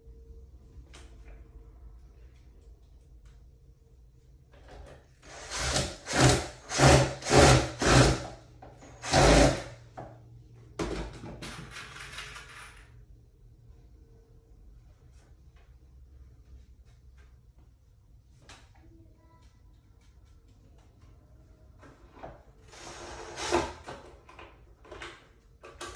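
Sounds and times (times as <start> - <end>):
cordless drill driving screw: 5.2 - 8.3, 9.0 - 9.7.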